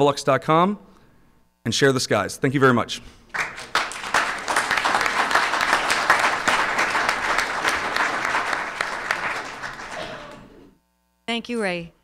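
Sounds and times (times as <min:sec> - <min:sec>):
audience applauding: 0:03.3 - 0:10.6.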